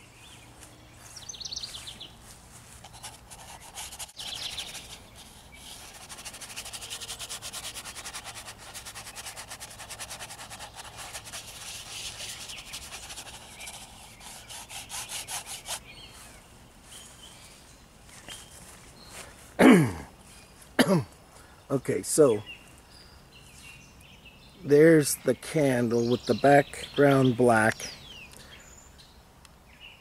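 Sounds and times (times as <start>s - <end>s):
paintbrush scrubbing on canvas: 2.7s - 16.0s.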